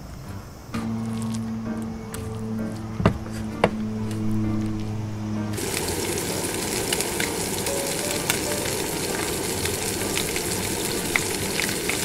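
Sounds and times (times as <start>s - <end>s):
oil popping: 0.7s - 4.8s, 5.5s - 12.0s
fish frying in oil: 5.6s - 12.0s.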